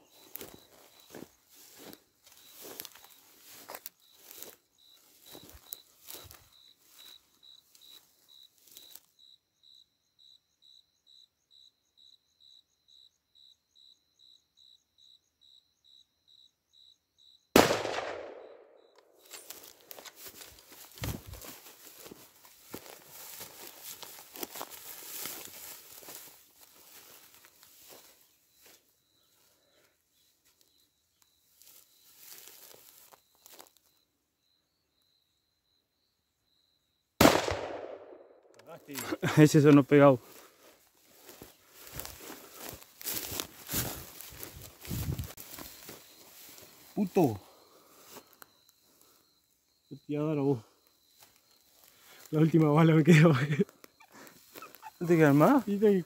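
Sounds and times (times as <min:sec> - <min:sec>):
crickets chirping: 0:00.0 - 0:56.0
echoing gunshot: 0:17.6 - 0:18.8, 0:37.2 - 0:38.4.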